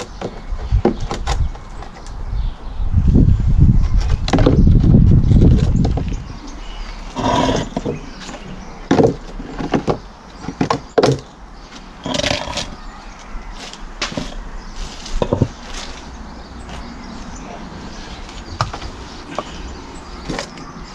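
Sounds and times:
plastic pots scraping rumble: 3.8s - 20.9s
plastic pots knocking and clattering: 7.2s - 11.3s, 15.1s - 15.9s.

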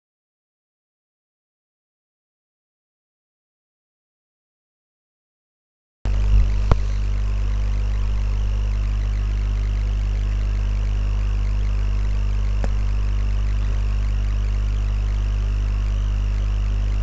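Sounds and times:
low electrical hum: 6.1s - 17.0s
mouse click: 6.6s - 7.0s, 12.5s - 13.8s.

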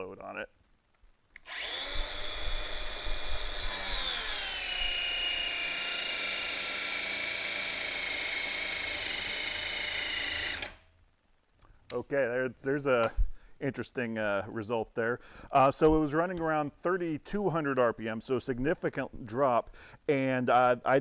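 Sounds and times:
angle grinder grinding metal: 1.4s - 10.8s.

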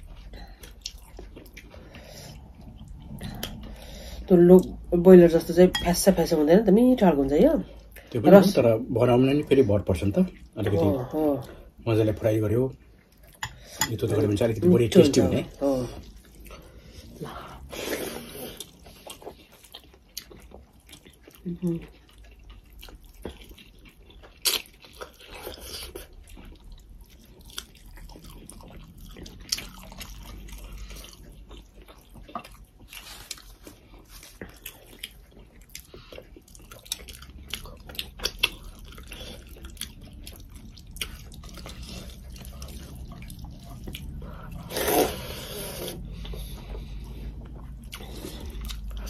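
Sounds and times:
people chewing food: 0.0s - 49.0s.

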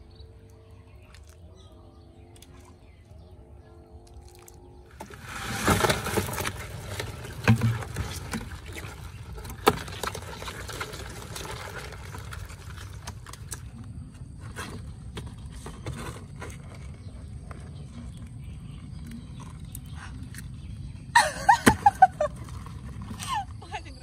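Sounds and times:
crabs tumbling into water: 4.1s - 17.1s.

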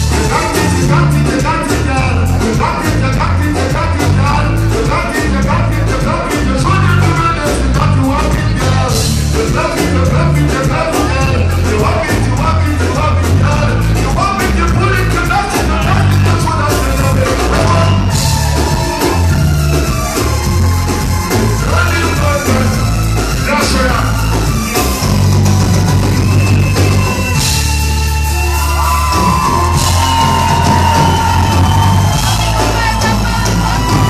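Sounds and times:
man singing lead vocal: 0.0s - 18.3s, 21.3s - 25.1s
drums: 0.0s - 34.0s
heavy bass line: 0.0s - 34.0s
keyboards: 0.0s - 34.0s.

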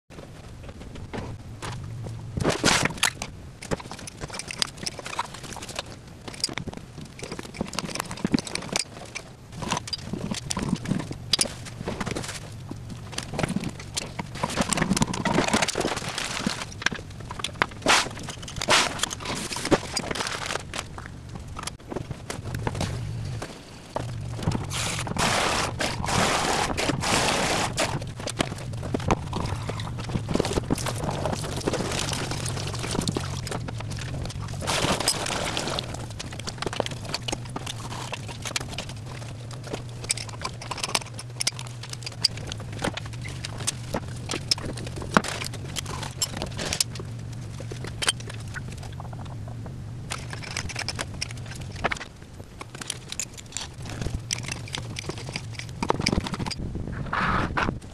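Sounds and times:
steady low hum: 0.1s - 57.9s.

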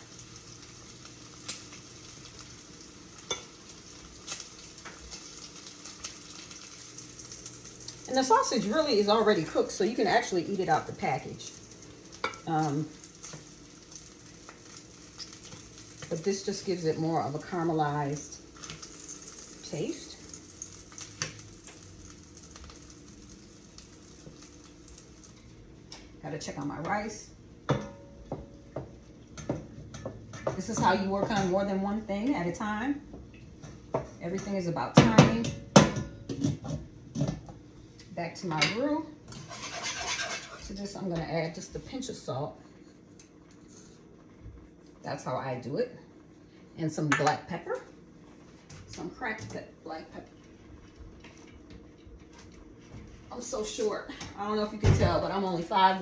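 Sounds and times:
sausage sizzling in a frying pan: 0.0s - 27.6s, 36.6s - 42.6s.

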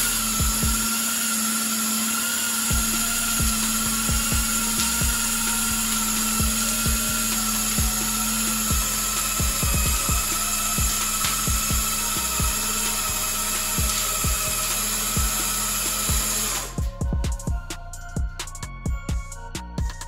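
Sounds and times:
electric motor whining: 0.0s - 20.0s
low thumps: 16.8s - 19.3s.

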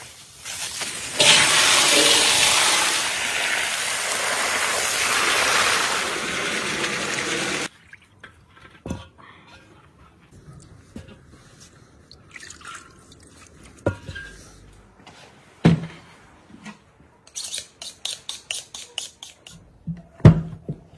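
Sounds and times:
water gushing from hose into pot: 0.0s - 7.7s
water dripping and splashing: 12.1s - 13.9s.

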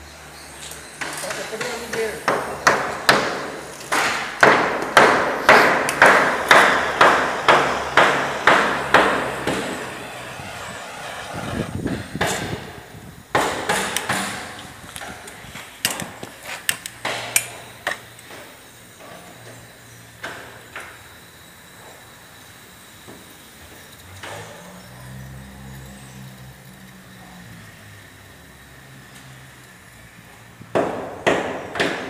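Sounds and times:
propane torch flame hissing: 2.0s - 17.0s.

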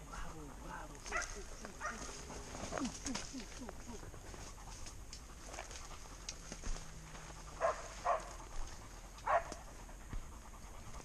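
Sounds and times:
dog barking: 1.1s - 2.3s, 7.6s - 8.4s, 9.2s - 9.8s.

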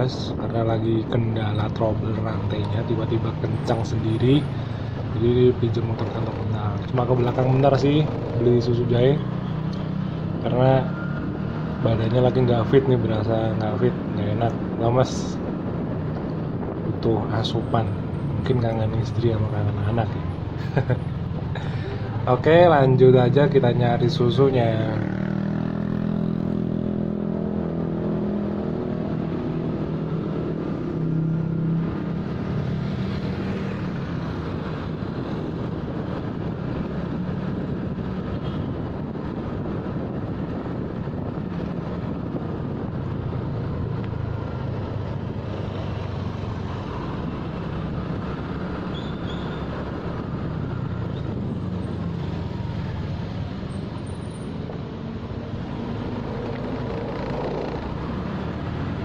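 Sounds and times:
steady rushing noise: 0.0s - 48.8s, 49.6s - 59.0s.

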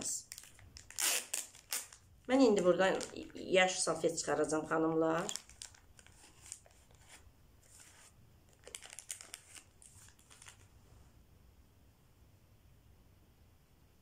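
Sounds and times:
plastic packet crinkling: 0.0s - 10.7s.

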